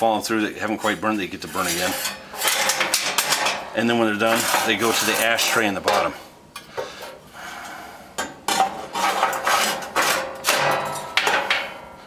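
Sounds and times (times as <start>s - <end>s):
metal tray scraping and clanking: 0.8s - 6.2s, 8.5s - 11.8s.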